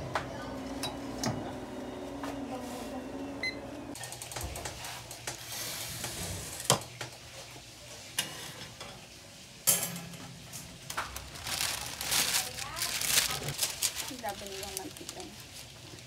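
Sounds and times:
metal tray and rack clinking: 9.6s - 11.0s.

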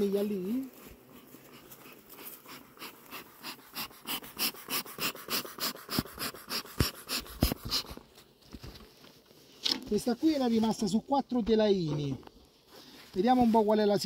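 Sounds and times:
bellows hissing puffs: 1.0s - 8.1s.

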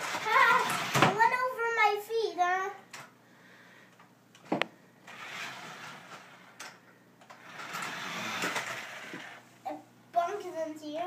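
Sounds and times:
toy truck motor whirring: 0.0s - 1.1s, 5.1s - 9.4s.

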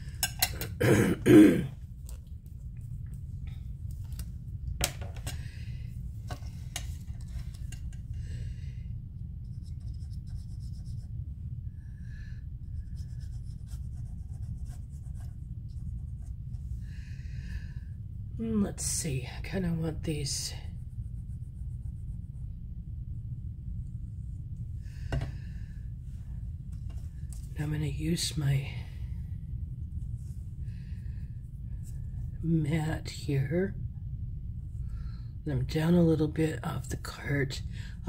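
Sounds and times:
steady low hum: 0.0s - 38.0s
woman coughing: 0.8s - 1.8s.

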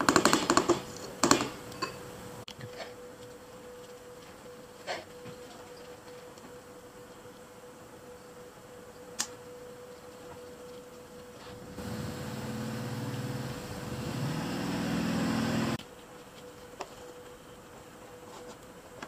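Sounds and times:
faint constant hum: 0.0s - 19.0s
machine motor drone: 11.4s - 15.8s.

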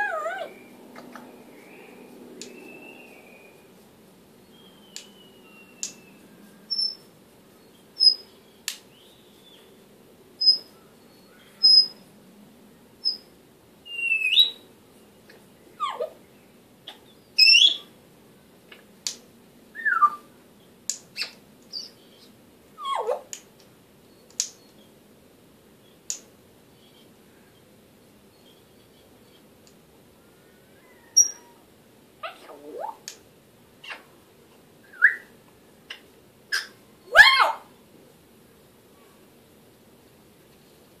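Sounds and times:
parrot clicks and whistles: 4.9s - 6.1s.

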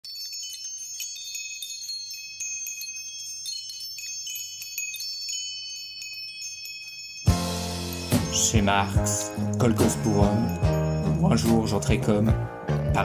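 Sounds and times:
metal chimes tinkling: 0.0s - 12.5s.

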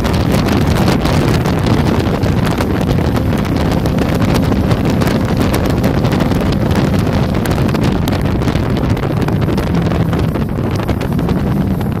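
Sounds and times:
boat engine hum: 0.0s - 12.0s
wind buffeting microphone: 0.0s - 12.0s.

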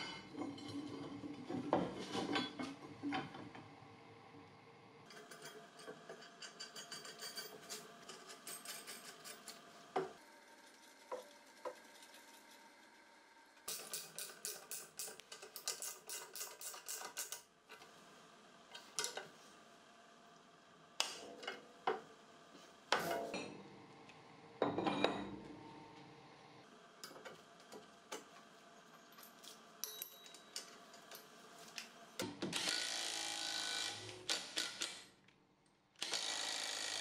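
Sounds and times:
metal tools clinking and knocking: 5.1s - 9.6s, 29.1s - 31.3s.

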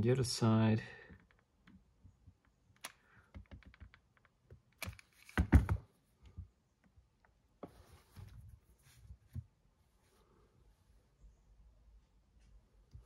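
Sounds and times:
hands handling small parts: 1.1s - 8.4s.

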